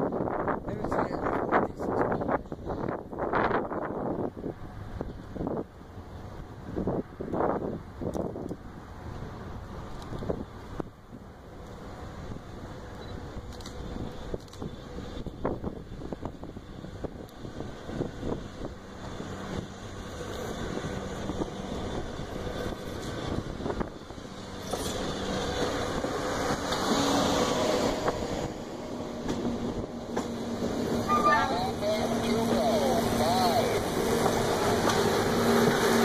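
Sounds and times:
rail machine engine hum: 0.0 - 36.0
wheels clacking on rails: 11.4 - 36.0.

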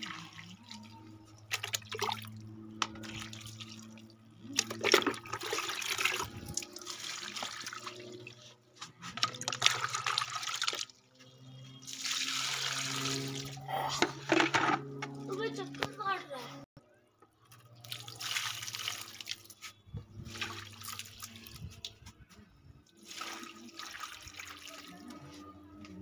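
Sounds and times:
water pouring onto soil: 11.9 - 13.6, 17.8 - 19.6, 20.3 - 21.6, 23.0 - 25.0.

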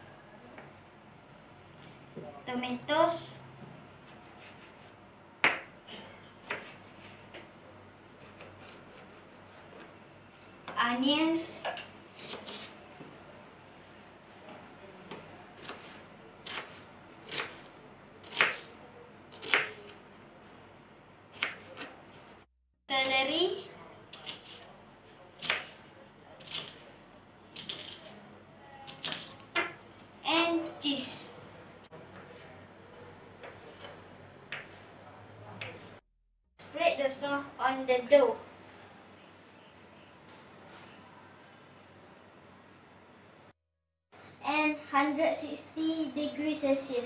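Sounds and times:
knife slicing tomato: 11.7 - 12.8, 15.6 - 20.0, 27.6 - 28.2.

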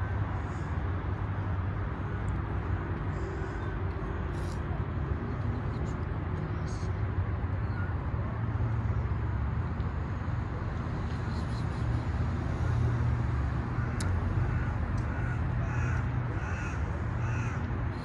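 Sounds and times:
road traffic rumble: 0.0 - 18.0.

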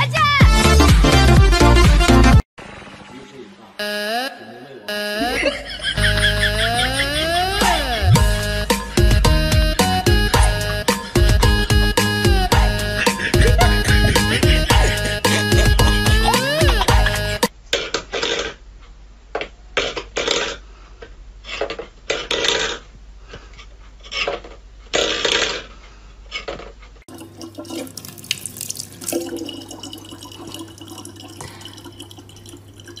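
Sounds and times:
tap running water into bottle: 27.1 - 33.0.

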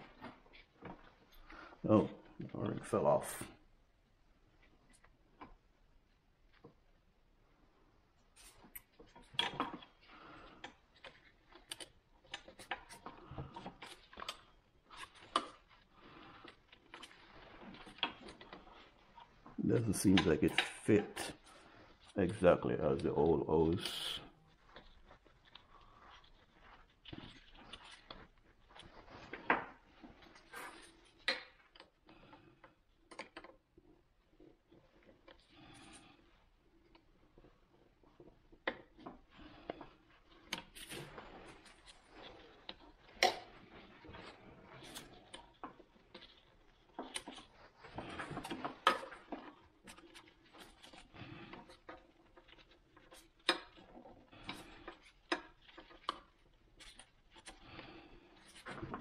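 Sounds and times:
soft rustling: 0.0 - 59.0
hands clicking and tapping hose: 8.4 - 21.4.

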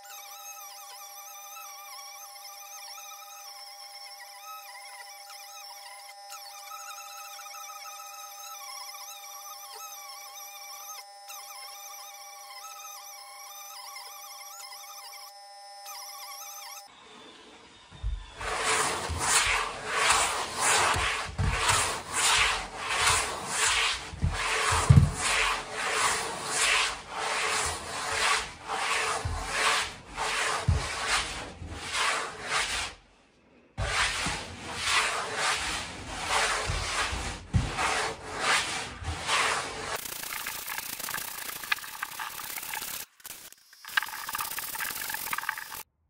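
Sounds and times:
sanding board rasping on styrofoam: 18.0 - 33.0, 33.8 - 43.1.

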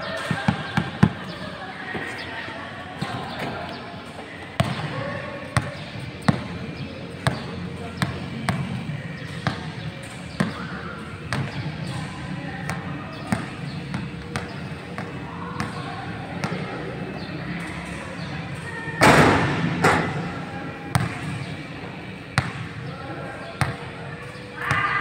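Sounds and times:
basketball bouncing on gym floor: 4.6 - 4.9, 7.2 - 16.7, 20.9 - 21.6, 22.3 - 22.7
ball hitting backboard and rim: 19.0 - 20.3, 20.9 - 21.5.

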